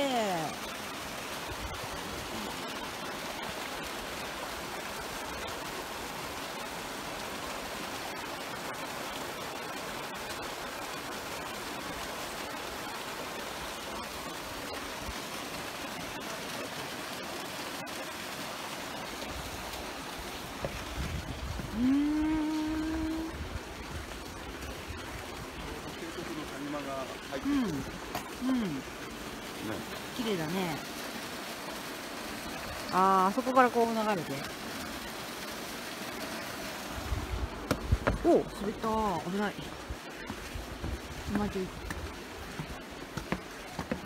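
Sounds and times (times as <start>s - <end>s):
waterfall splashing into pool: 0.0s - 44.0s
person's voice: 21.7s - 23.4s, 25.8s - 28.9s, 38.2s - 39.7s, 41.3s - 41.8s.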